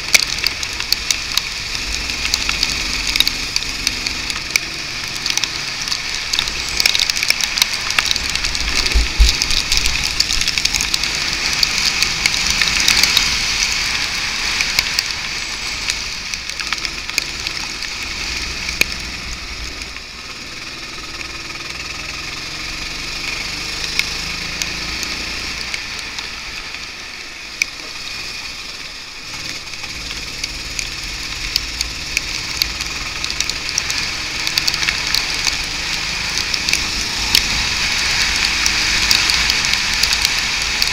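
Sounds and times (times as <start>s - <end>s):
faint go-kart engine: 0.0s - 40.9s.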